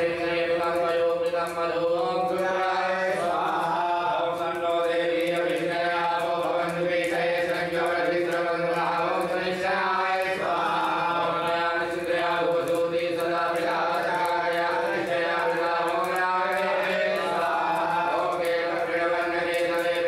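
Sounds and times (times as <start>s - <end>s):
men chanting: 0.0s - 20.0s.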